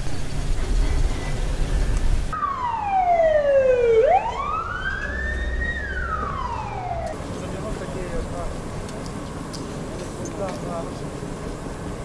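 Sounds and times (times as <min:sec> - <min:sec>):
fire engine siren wailing: 0:01.8 - 0:07.9.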